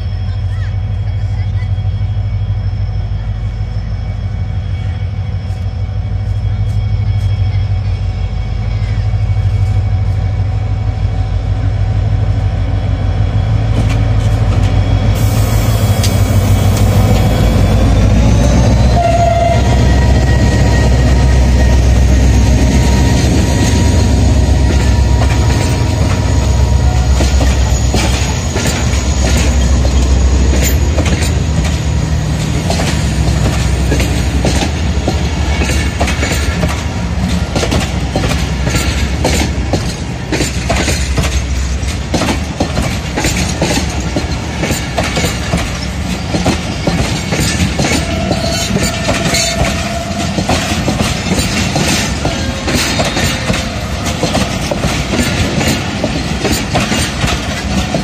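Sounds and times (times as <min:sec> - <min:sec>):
locomotive engine rumble: 0:00.2 - 0:58.0
train wheels clattering on rail joints: 0:13.6 - 0:58.0.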